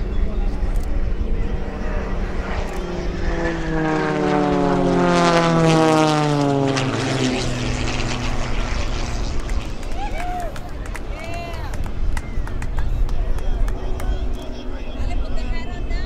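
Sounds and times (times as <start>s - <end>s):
propeller planes passing low: 0.0s - 16.0s.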